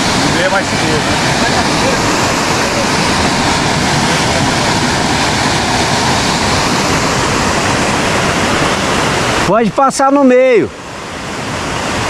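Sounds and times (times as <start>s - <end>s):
rushing water roar: 0.0s - 12.0s.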